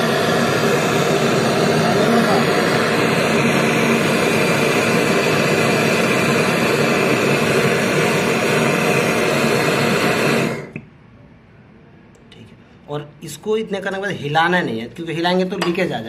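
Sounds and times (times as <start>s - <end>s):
torch flame hissing: 0.0s - 10.9s.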